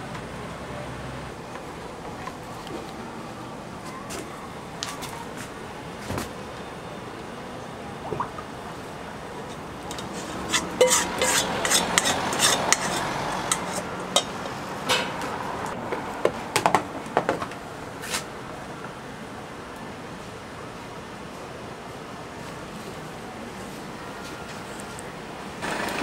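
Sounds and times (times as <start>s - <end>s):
spatula scraping a steel bowl: 9.9s - 14.3s.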